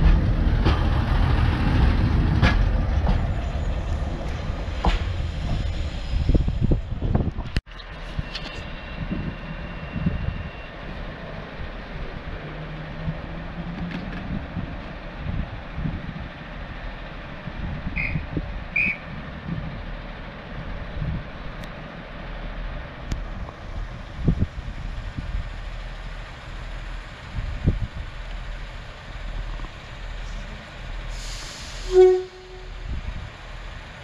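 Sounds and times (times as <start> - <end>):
wind on microphone: 0.0 - 10.6, 23.2 - 25.6, 27.3 - 28.2, 32.7 - 33.4
diesel railbus rumbling: 0.0 - 34.0
air hiss: 31.0 - 32.0
train horn toot: 31.8 - 32.8.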